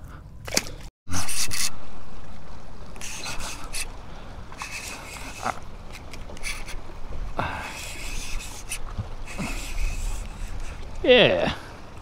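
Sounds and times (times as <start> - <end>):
water splashing and trickling: 0.4 - 12.0.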